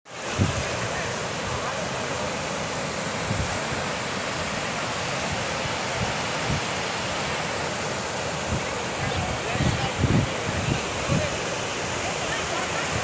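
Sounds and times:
river rushing over stones: 0.1 - 13.0
wind thumps on microphone: 0.4 - 0.7, 8.5 - 11.3.

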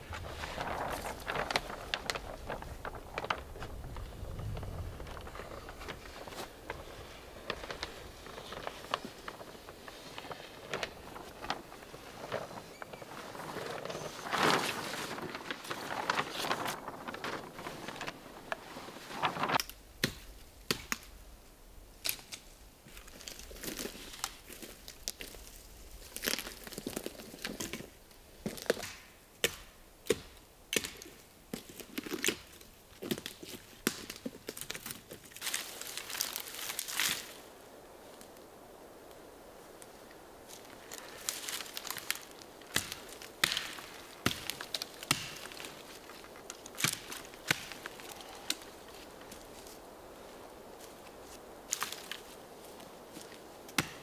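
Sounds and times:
plastic sheet crinkling: 0.0 - 19.7, 31.6 - 37.4, 40.4 - 53.7
dry twigs cracking and snapping: 22.0 - 27.9, 30.8 - 37.4, 40.5 - 49.9, 50.8 - 54.0.

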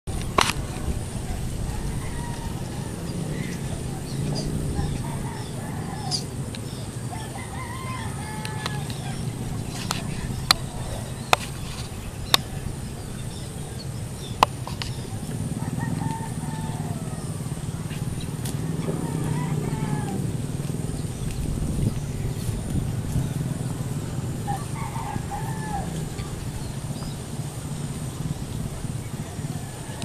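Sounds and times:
rooster crowing: 1.6 - 3.9, 4.7 - 6.3, 7.0 - 10.1, 15.5 - 17.8, 18.8 - 20.4, 24.4 - 26.3, 29.2 - 30.0.

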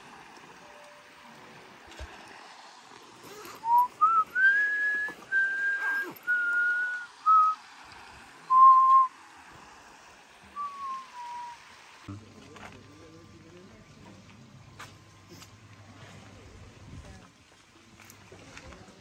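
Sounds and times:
person whistling a tune: 3.6 - 7.6, 8.5 - 9.1, 10.6 - 11.6.

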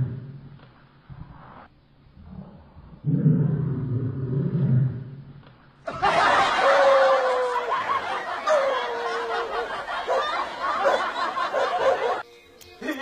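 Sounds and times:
people laughing: 5.9 - 12.2.

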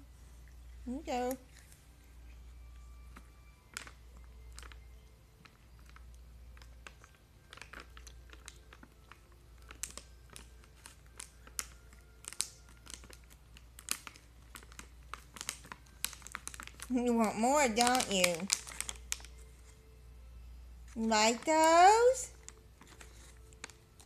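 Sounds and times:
cat crunching dry treats: 1.2 - 19.6, 21.0 - 24.0.

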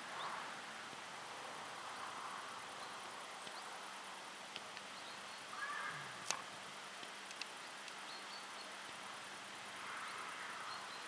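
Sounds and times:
faint open-air background noise: 0.0 - 11.0.

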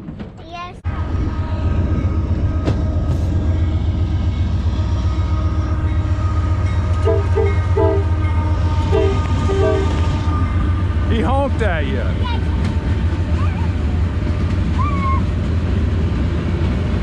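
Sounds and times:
train rumbling past: 0.0 - 17.0
train horn short honks: 5.0 - 10.6.

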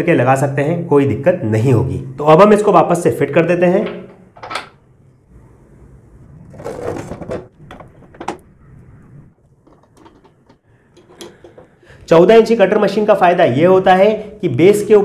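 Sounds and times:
scraping rustle: 6.2 - 11.7
metal parts clicking: 9.6 - 11.8.

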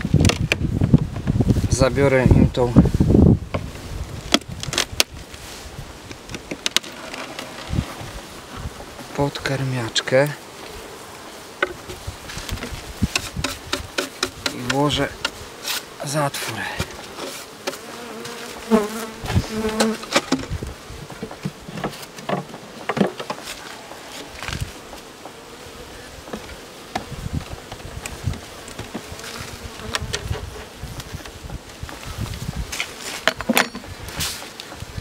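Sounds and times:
honeybees buzzing: 0.0 - 35.0
wooden hive parts knocking: 6.1 - 7.7, 11.6 - 15.4, 19.6 - 23.6, 26.3 - 29.2, 32.4 - 34.0.

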